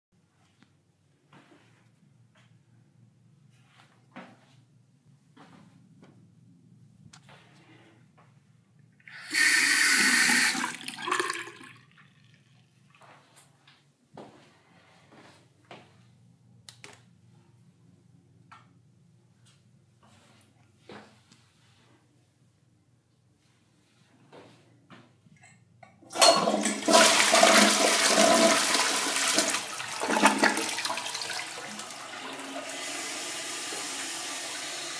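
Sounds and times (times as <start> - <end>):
toilet flushing: 9.0 - 12.8, 26.1 - 34.9
faucet water running into sink: 9.1 - 12.2, 26.2 - 34.9.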